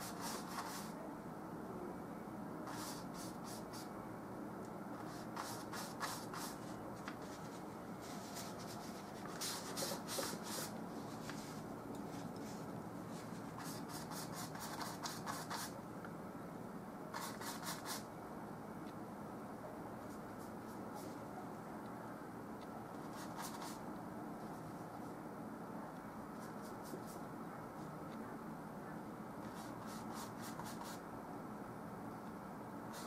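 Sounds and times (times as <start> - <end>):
paintbrush scrubbing strokes: 0.0 - 1.0, 2.7 - 3.9, 5.0 - 15.7
low room hum: 0.0 - 33.0.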